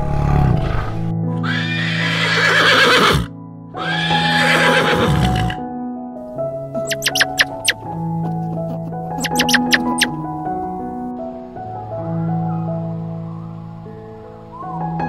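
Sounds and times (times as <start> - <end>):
background music: 0.0 - 15.0
horse whinnying: 0.6 - 5.6, 6.9 - 7.8, 9.2 - 10.1.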